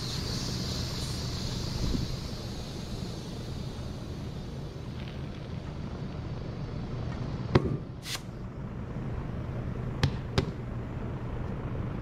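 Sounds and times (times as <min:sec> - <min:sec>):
steady low hum: 0:00.0 - 0:12.0
brief hiss: 0:08.0 - 0:08.3.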